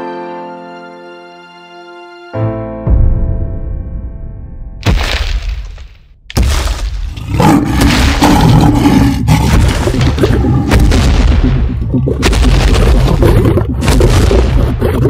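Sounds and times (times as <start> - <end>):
heavy crunching thuds: 4.8 - 8.7.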